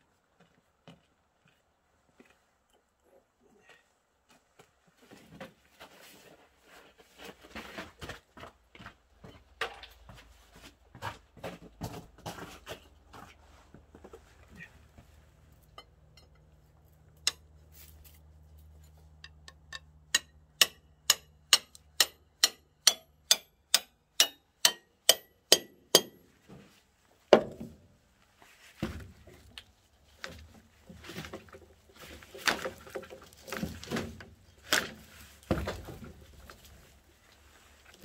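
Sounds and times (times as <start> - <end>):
knocking and scraping: 28.7 - 36.9.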